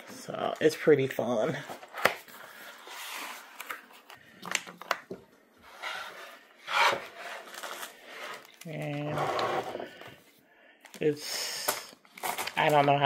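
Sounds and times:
wooden board scraping on table: 0:05.7 - 0:07.4, 0:09.0 - 0:10.0.

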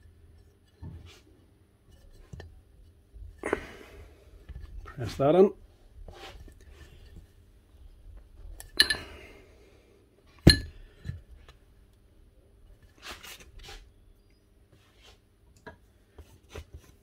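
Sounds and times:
soft rustle: 0:04.3 - 0:08.6, 0:14.7 - 0:15.3
metal parts clinking: 0:08.6 - 0:09.1.

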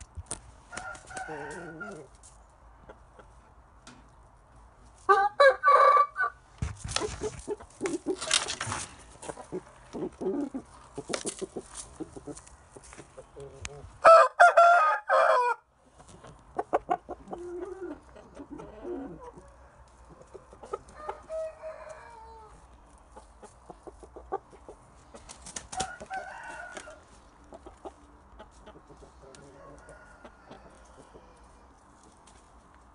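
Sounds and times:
rooster crowing: 0:00.7 - 0:02.1, 0:05.1 - 0:06.4, 0:14.0 - 0:15.6, 0:20.9 - 0:22.6, 0:25.8 - 0:27.1, 0:29.4 - 0:31.5
rooster clucking: 0:00.7 - 0:02.2, 0:05.1 - 0:14.9, 0:16.0 - 0:31.7
clicks and rustles: 0:06.6 - 0:10.2.

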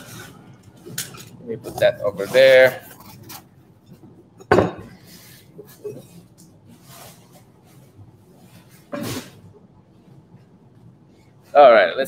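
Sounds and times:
tableware and boxes handled: 0:00.0 - 0:09.5.

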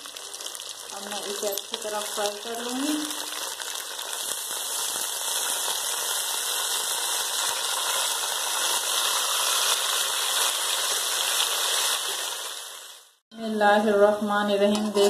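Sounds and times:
chicken frying in hot oil: 0:00.0 - 0:13.2.

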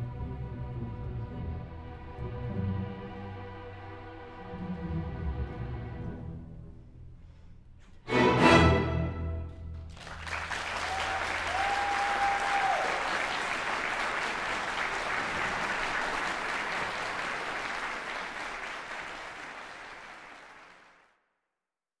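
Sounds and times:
string orchestra chord: 0:08.0 - 0:09.8
audience applause: 0:09.8 - 0:21.2.

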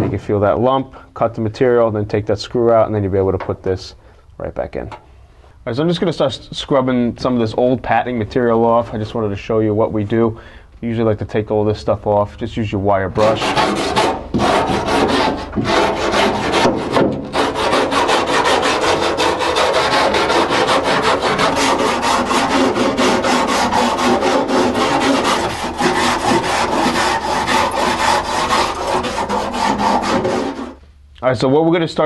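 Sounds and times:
wire brush scrubbing metal: 0:13.2 - 0:30.8.

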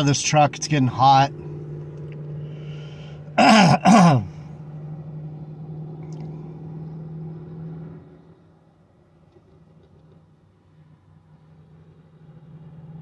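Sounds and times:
low hum in truck cab: 0:00.0 - 0:13.0
man groaning: 0:03.4 - 0:04.4.

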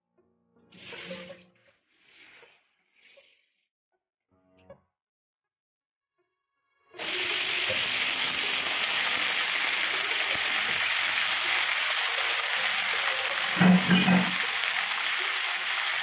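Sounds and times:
vegetables sizzling in hot oil: 0:07.0 - 0:16.0.

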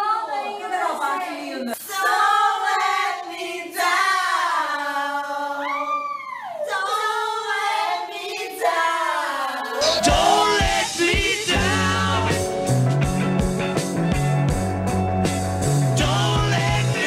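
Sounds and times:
women singing unaccompanied: 0:00.0 - 0:11.0
rock music with bass: 0:09.8 - 0:17.0.

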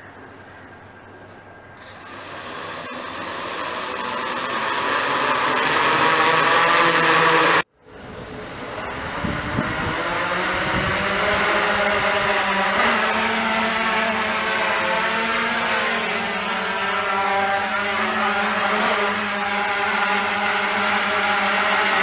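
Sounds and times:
quadcopter motors whirring: 0:01.8 - 0:22.0
gusty low rumble: 0:08.0 - 0:12.2.

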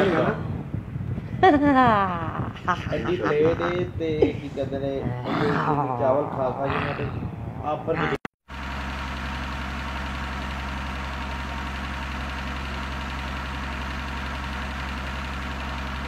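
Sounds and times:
low hum: 0:00.0 - 0:08.2.

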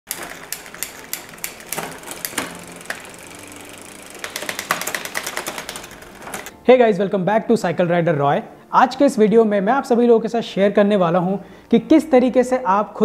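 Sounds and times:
bicycle chain over cassette ticking: 0:00.1 - 0:06.5.

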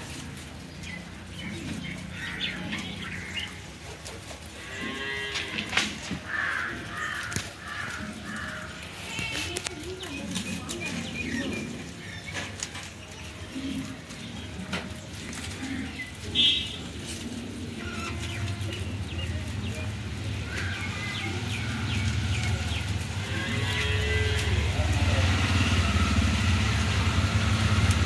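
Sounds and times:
farmyard birds calling: 0:00.0 - 0:28.0
low engine hum: 0:24.3 - 0:28.0.

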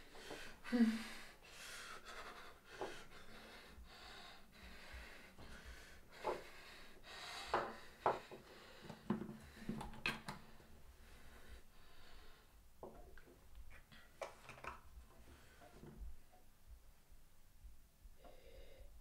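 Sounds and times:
heavy breathing through nose: 0:00.0 - 0:09.7, 0:10.6 - 0:12.6.

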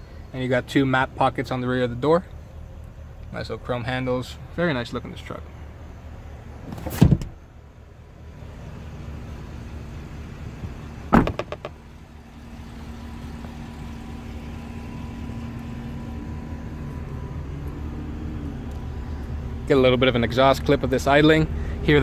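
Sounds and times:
truck door slamming: 0:06.6 - 0:07.4, 0:10.6 - 0:11.8
truck engine idling: 0:07.4 - 0:22.0.

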